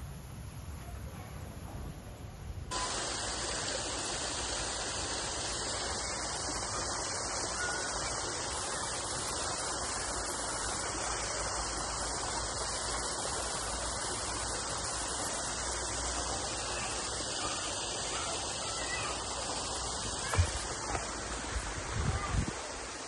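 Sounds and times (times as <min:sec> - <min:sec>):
waterfall rushing: 0:02.7 - 0:23.0.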